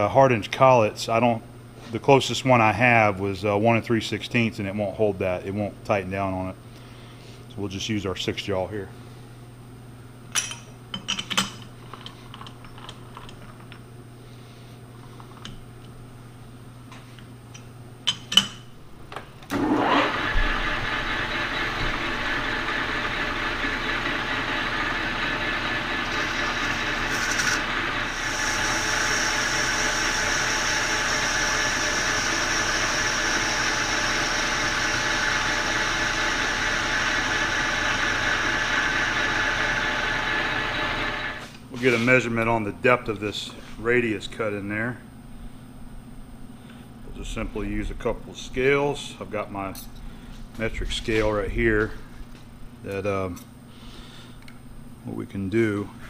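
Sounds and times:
lathe running: 19.5 - 41.5.

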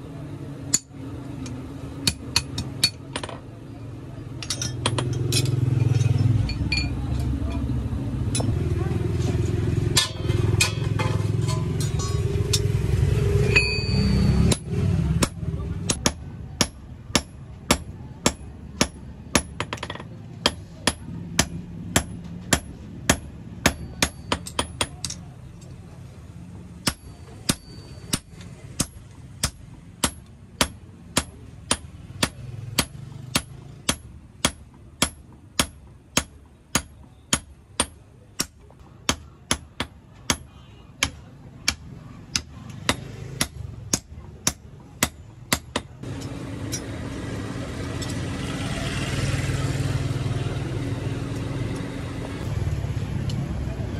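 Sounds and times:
hammer striking metal on anvil: 0.7 - 3.4, 8.2 - 8.6, 9.9 - 12.8, 13.4 - 25.3, 26.8 - 47.0.

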